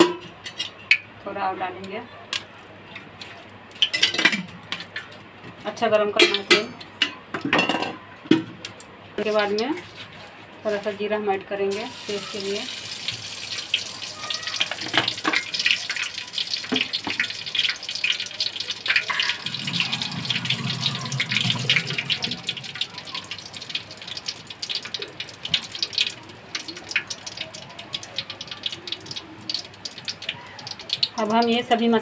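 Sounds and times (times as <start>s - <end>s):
seeds sizzling in hot oil: 11.7s - 32.0s.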